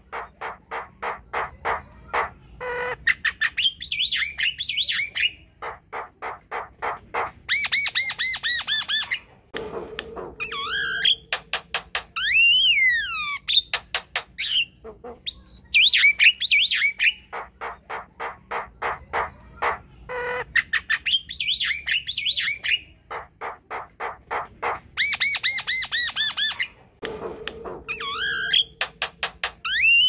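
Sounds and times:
bird song with clicks and whistles: 0:03.1 - 0:05.4, 0:10.0 - 0:17.3, 0:20.6 - 0:22.9, 0:27.9 - 0:30.0.

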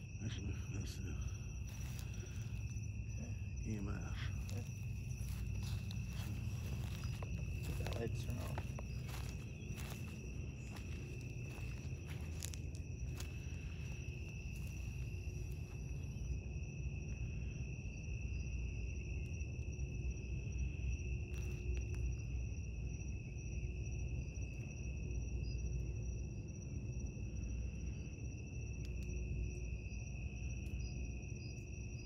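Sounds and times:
low rumble: 0:00.0 - 0:18.0
night insects trilling: 0:00.0 - 0:32.0.

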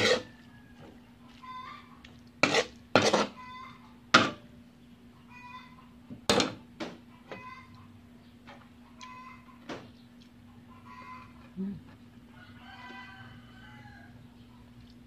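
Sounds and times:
spatula scraping a wok: 0:00.0 - 0:00.4, 0:02.4 - 0:03.4.

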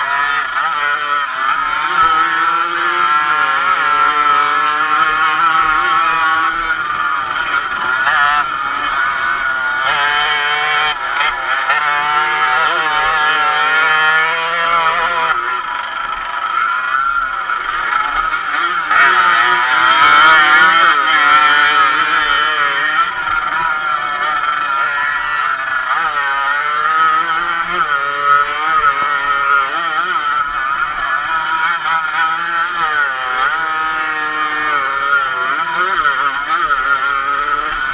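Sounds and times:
dirt bike engine revving: 0:00.0 - 0:37.9.

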